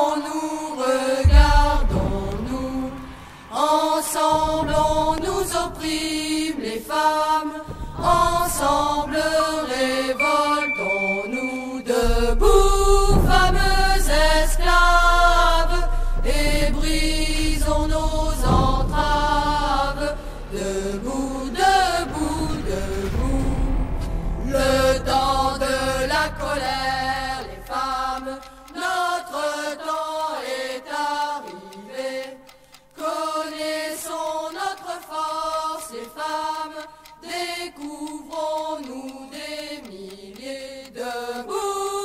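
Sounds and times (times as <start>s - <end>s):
chant-like vocal melody: 0.0s - 42.0s
deep steady bass: 1.2s - 3.2s, 12.1s - 28.2s.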